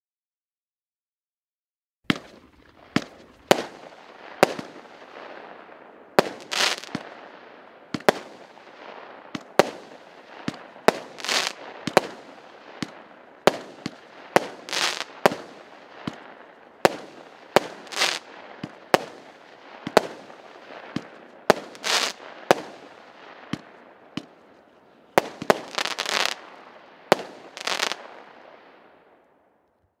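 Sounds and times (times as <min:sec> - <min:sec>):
firework hiss: 0:06.2 - 0:07.3, 0:09.8 - 0:15.5, 0:17.5 - 0:18.3, 0:19.8 - 0:23.0, 0:25.4 - 0:26.5, 0:27.3 - 0:28.1.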